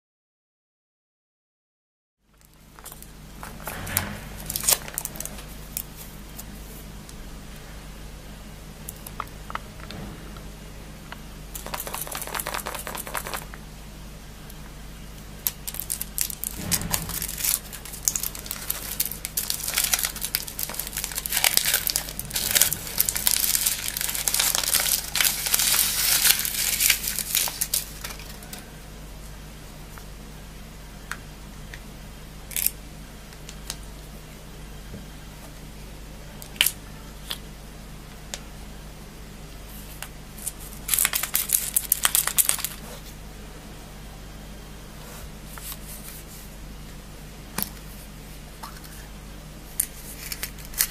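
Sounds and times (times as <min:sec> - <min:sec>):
foil wrapper crinkling and tearing: 0:11.6 - 0:13.5, 0:15.4 - 0:16.6, 0:17.2 - 0:28.4, 0:40.4 - 0:42.8, 0:49.9 - 0:50.9.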